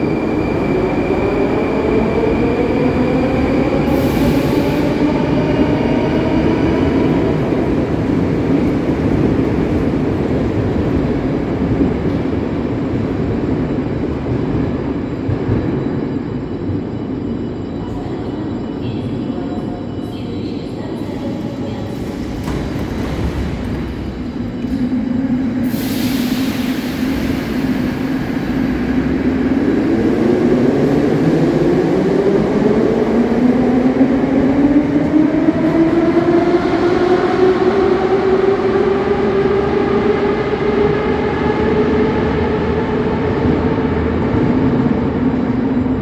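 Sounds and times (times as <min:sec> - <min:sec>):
rumble of train wheels: 0:00.0 - 0:46.0
air hiss of train doors: 0:03.9 - 0:05.0, 0:25.6 - 0:28.5.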